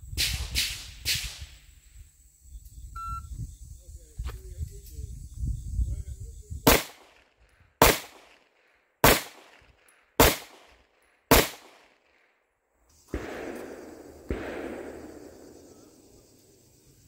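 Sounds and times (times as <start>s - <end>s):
pistol shots: 6.7s - 12.3s, 13.1s - 15.7s.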